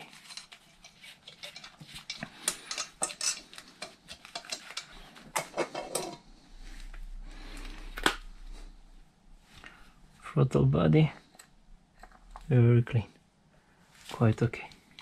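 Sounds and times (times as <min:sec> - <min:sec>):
metal clinks and knocks: 0:00.2 - 0:06.2.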